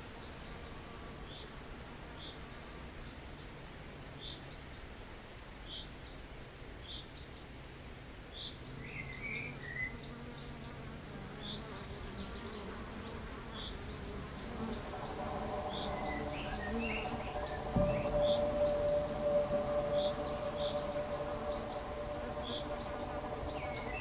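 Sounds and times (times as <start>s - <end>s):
bees humming: 8.8s - 24.0s
bird chirping: 11.4s - 24.0s
steady musical tones: 14.5s - 24.0s.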